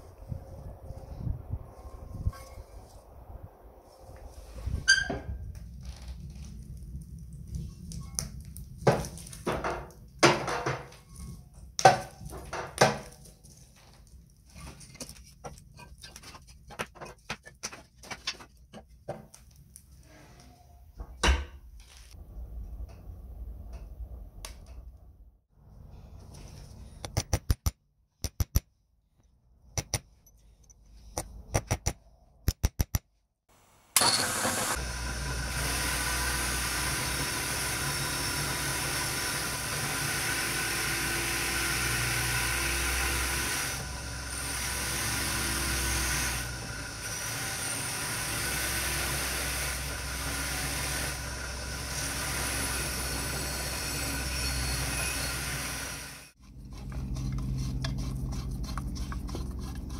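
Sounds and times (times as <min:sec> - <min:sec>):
fire crackling: 0:05.4 - 0:10.2
bench grinder grinding metal: 0:34.0 - 0:58.1.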